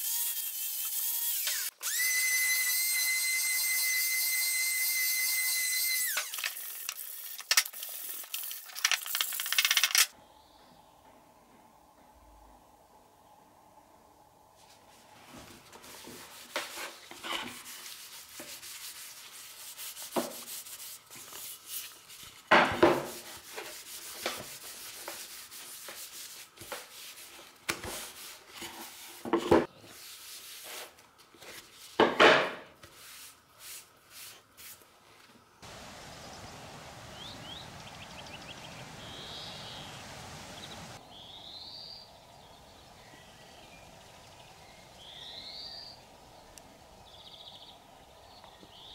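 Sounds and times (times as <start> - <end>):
outdoor hiss: 5.8 - 10.6, 12.3 - 48.9
bird chirps: 36.1 - 46.0.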